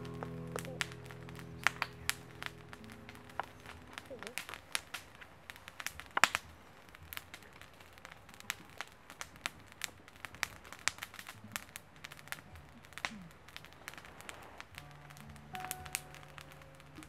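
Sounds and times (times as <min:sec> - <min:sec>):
faint low hum: 0:00.0 - 0:06.8
soft crackles and clicks: 0:00.0 - 0:17.0.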